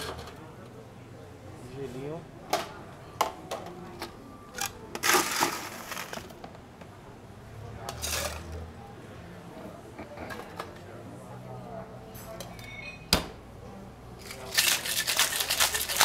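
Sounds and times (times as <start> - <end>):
ice clinking against metal and glass: 12.5 - 13.0, 14.2 - 16.0
ice cubes rattling into metal shaker: 14.2 - 16.0.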